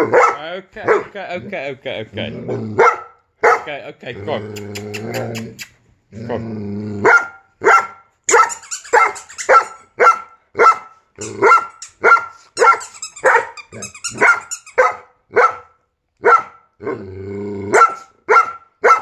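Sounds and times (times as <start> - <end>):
dog barking: 0.0 - 1.2, 2.8 - 3.8, 7.0 - 16.7, 17.7 - 19.0.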